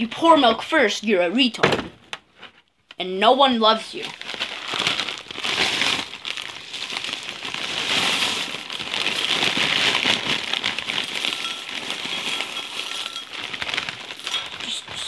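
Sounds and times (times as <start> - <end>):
plastic bag crinkling: 3.9 - 15.0
cereal pouring into bowl: 6.1 - 15.0.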